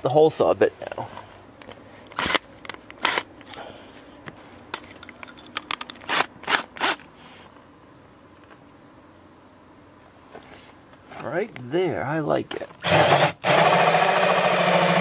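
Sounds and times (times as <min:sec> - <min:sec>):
drill scraping and clicking: 0:02.1 - 0:03.3, 0:05.8 - 0:07.1, 0:12.8 - 0:15.0.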